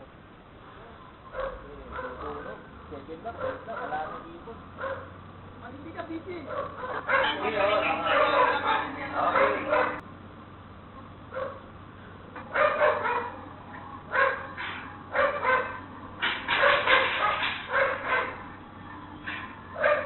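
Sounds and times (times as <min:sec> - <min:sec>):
dog barking: 0:01.3 - 0:02.6, 0:03.4 - 0:04.2, 0:04.8 - 0:05.1, 0:06.5 - 0:10.0, 0:11.3 - 0:11.6, 0:12.4 - 0:13.5, 0:14.1 - 0:18.5, 0:19.2 - 0:20.0.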